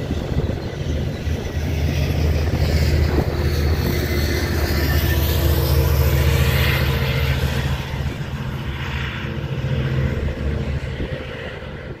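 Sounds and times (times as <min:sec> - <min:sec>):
diesel locomotive engine drone: 0:00.0 - 0:12.0
train wheel noise: 0:00.0 - 0:12.0.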